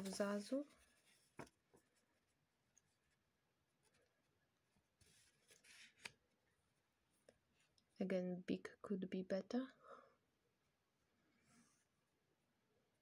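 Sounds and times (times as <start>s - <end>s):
paper rustling: 0.0s - 3.2s, 3.8s - 6.2s.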